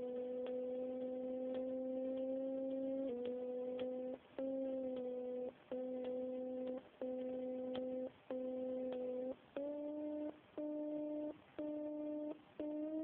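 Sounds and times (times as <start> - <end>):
low buzzy beeps rising in pitch: 0.0 - 13.0.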